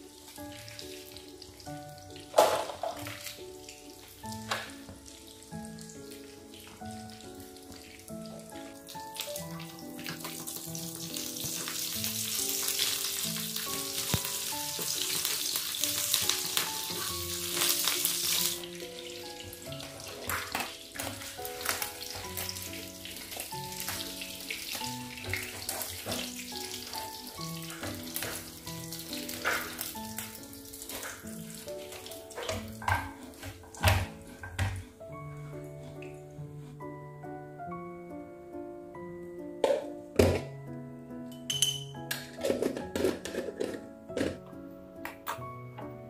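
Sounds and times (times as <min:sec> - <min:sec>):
hot oil sizzling: 0:00.0 - 0:35.8
soft background music: 0:00.0 - 0:46.0.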